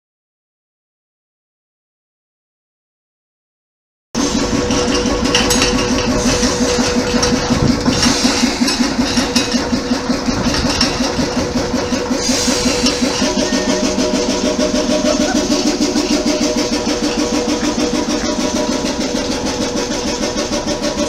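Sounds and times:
diesel locomotive engine idling: 4.2s - 21.0s.

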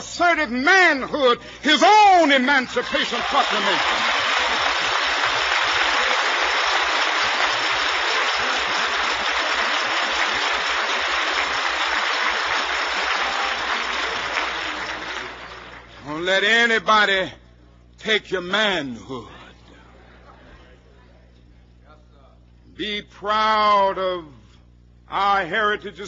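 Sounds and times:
audience applauding: 1.8s - 16.0s.

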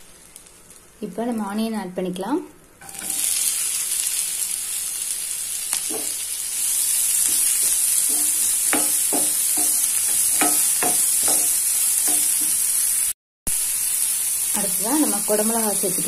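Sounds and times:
onions sizzling in a frying pan: 0.0s - 1.7s, 2.8s - 16.0s
spatula knocking and scraping pan: 5.8s - 6.2s, 7.2s - 12.7s.

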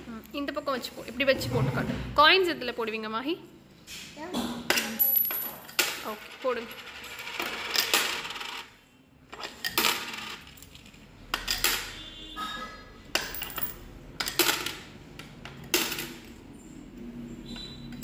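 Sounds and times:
coins clinking into piggy bank: 4.8s - 8.7s, 9.3s - 12.0s, 13.1s - 14.9s.

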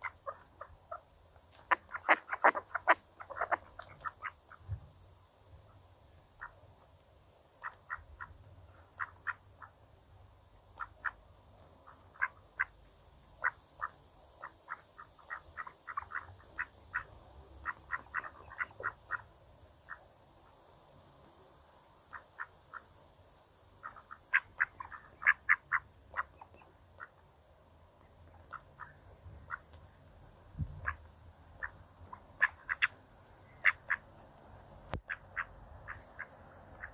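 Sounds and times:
ducks feeding clicks: 0.0s - 4.6s, 7.6s - 11.2s, 11.8s - 12.7s, 13.4s - 19.3s, 23.8s - 27.2s, 28.0s - 29.9s, 31.6s - 36.9s
ducks calling softly: 0.0s - 20.6s, 21.7s - 27.3s, 27.9s - 36.9s.

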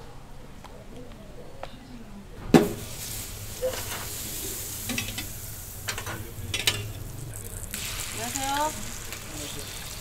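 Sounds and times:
fat sizzling on a griddle: 2.8s - 6.6s, 7.2s - 10.0s
metal molds clinking on griddle: 4.8s - 7.0s.

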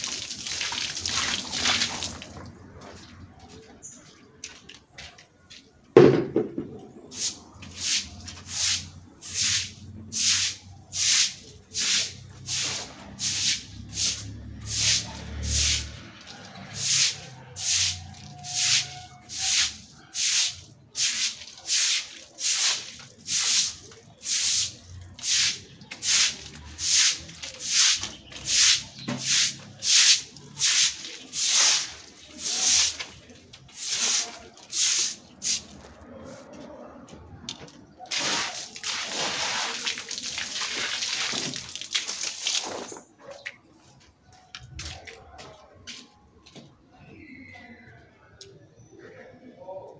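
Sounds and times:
thrown water splashing: 0.0s - 2.4s, 7.1s - 33.2s, 38.1s - 43.0s
stiff broom scrubbing wet floor: 0.0s - 2.5s, 7.1s - 36.5s, 38.1s - 43.1s.

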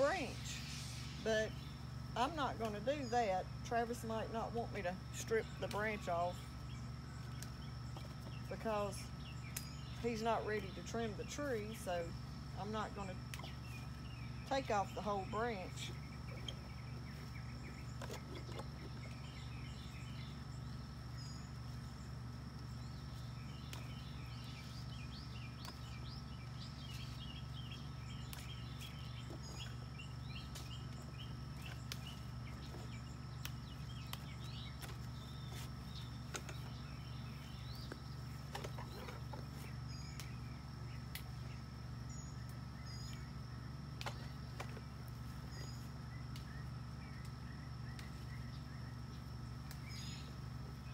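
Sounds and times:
birds chirping: 0.0s - 50.9s
steady low hum: 0.0s - 50.9s
leaves rustling as plucked: 30.4s - 36.8s.

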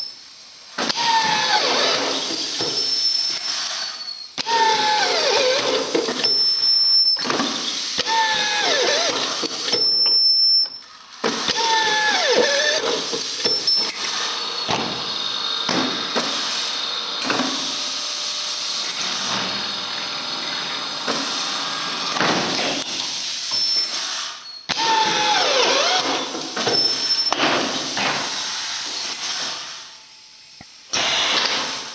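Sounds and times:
screwdriver whining: 0.9s - 10.8s, 11.4s - 15.4s, 23.5s - 27.4s.

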